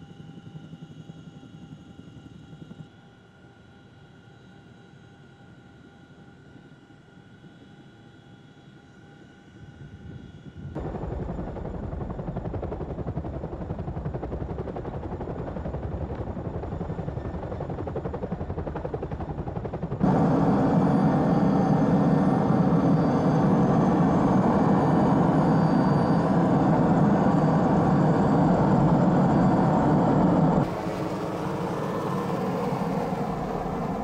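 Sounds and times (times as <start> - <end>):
helicopter engine noise: 10.5 - 34.0
helicopter rotor chop: 10.8 - 34.0
faint hum with held tones: 20.0 - 34.0.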